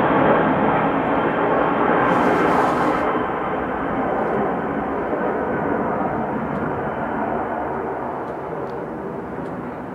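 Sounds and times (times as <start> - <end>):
jet engines roaring: 0.0 - 9.9.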